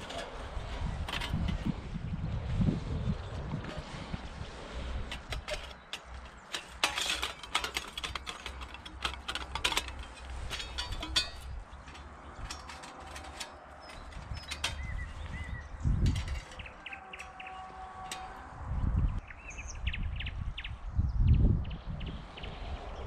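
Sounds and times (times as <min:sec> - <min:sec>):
sheet metal clinking and rattling: 0:04.9 - 0:18.6.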